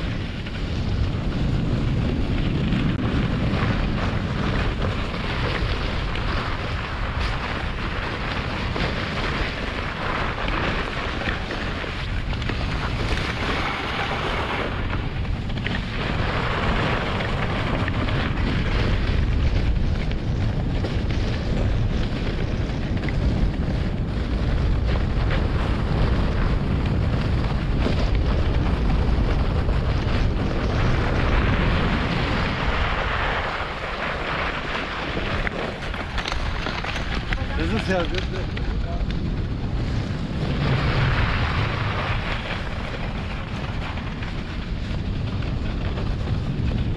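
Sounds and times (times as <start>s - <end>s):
wind rumble on microphone: 0.0s - 46.9s
sled runners hissing on snow: 3.2s - 36.2s.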